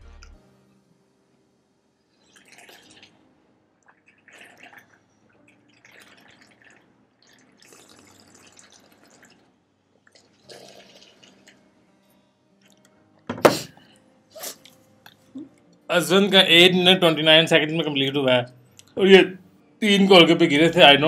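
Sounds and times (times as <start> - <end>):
slurping and sipping: 2.2 - 3.2, 3.9 - 11.6.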